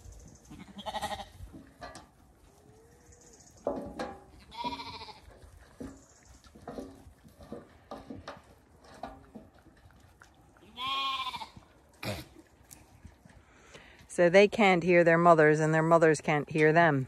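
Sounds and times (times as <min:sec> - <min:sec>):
lambs bleating: 0:00.5 - 0:01.4, 0:04.4 - 0:05.3, 0:10.6 - 0:12.3.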